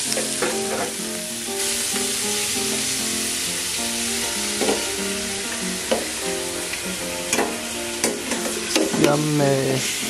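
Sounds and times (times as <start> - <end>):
background music with held notes: 0.0 - 10.0
pork sizzling in a pot: 0.0 - 10.0.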